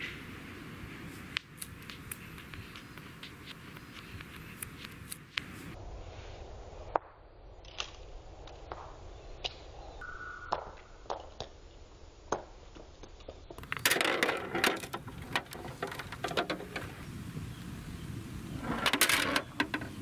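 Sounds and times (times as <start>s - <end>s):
plastic clattering on concrete: 13.5s - 17.0s, 18.6s - 20.0s
plastic toys clicking on concrete: 13.5s - 17.0s, 18.8s - 20.0s.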